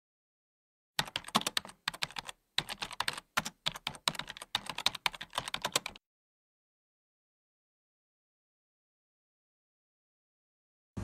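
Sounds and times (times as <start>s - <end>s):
keyboard typing: 1.0s - 6.0s.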